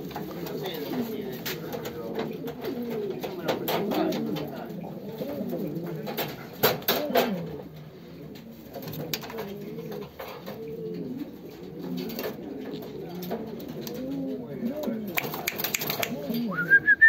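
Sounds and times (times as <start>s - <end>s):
pigeons cooing: 0.0s - 17.0s
sharp claps: 15.1s - 16.2s.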